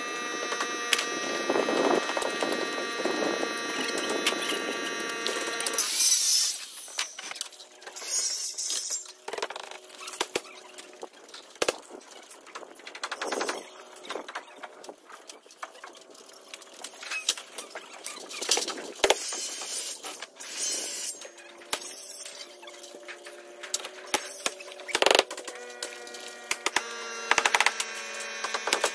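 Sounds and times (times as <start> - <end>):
circular saw cutting: 0.0 - 7.2, 19.2 - 28.9.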